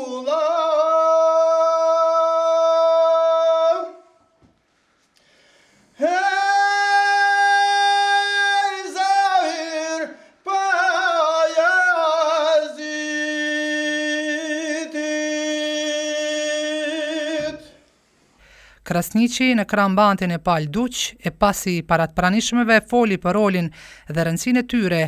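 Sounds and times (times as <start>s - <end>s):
man singing in high voice: 0.0s - 4.4s, 6.0s - 17.9s.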